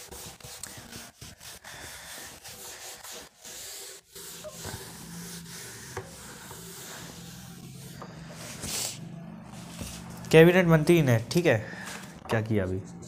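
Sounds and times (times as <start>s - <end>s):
scratchy rubbing in short strokes: 0.0s - 9.0s.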